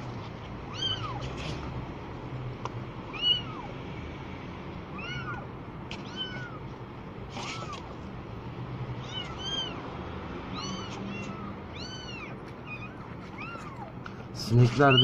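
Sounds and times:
kittens mewing: 0.6 - 1.8, 3.0 - 3.8, 4.9 - 8.1, 8.9 - 15.0.

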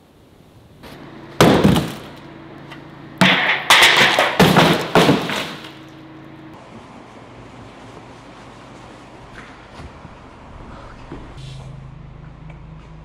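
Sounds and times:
box thudding on concrete floor: 1.4 - 2.1, 3.2 - 5.8.

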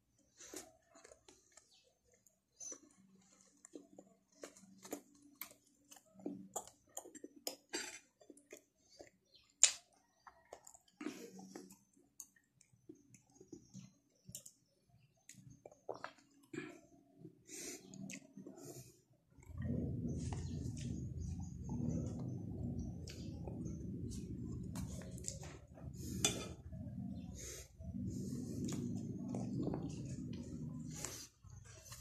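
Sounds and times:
person chewing food: 0.1 - 32.0
mouth clicks and smacks: 3.7 - 16.5, 17.8 - 18.6, 24.6 - 25.8.

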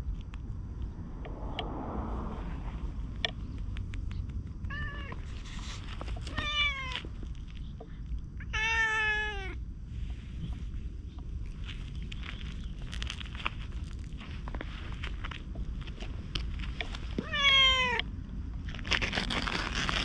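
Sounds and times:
cat meowing: 8.4 - 9.6, 17.2 - 18.0.

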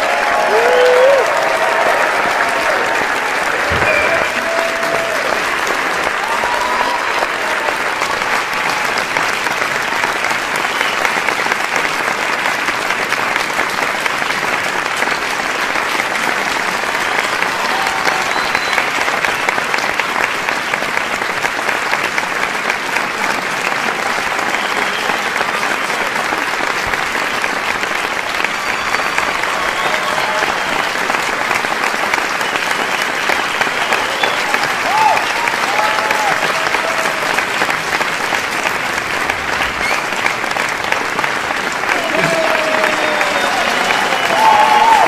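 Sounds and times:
shouts and cheers: 0.0 - 9.1, 16.9 - 19.4, 28.3 - 31.6, 33.2 - 37.7, 41.8 - 45.0
crowd applauding: 0.0 - 45.0.

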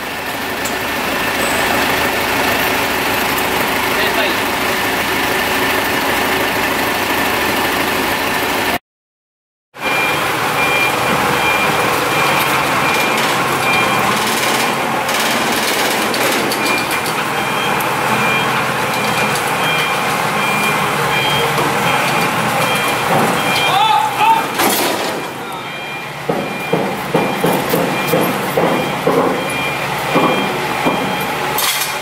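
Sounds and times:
forklift engines running: 0.0 - 8.8, 9.8 - 32.0
reversing alarm beeps: 9.8 - 14.7, 16.6 - 24.6, 25.2 - 31.6.

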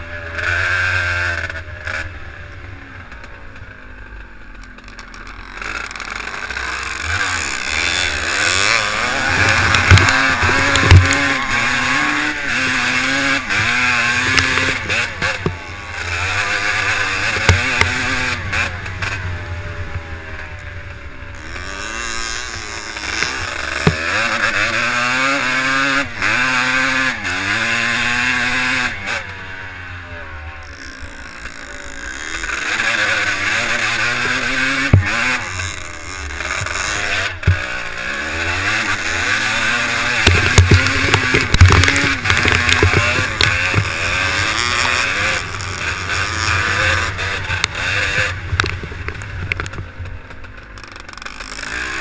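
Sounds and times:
motocross bike engine revving: 0.0 - 52.0
sharp knocks: 40.2 - 44.0.

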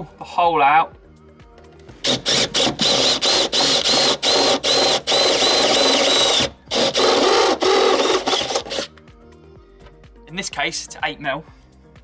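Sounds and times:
power drill whining in bursts: 2.0 - 8.9.

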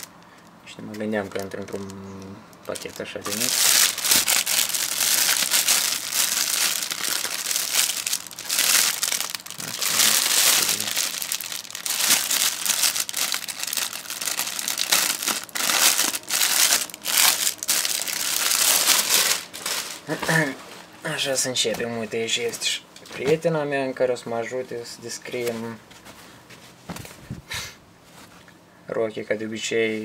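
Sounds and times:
plastic bag crinkling: 1.2 - 20.9.

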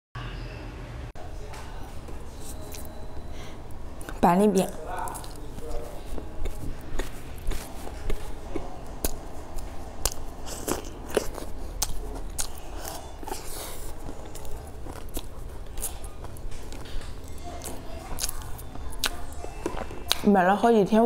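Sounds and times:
crisp pastry crunching: 4.1 - 20.3.

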